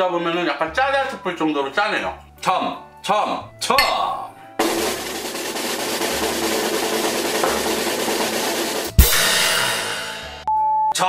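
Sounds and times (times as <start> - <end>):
snare drum roll: 4.6 - 10.0
cymbal crash: 7.7 - 10.4.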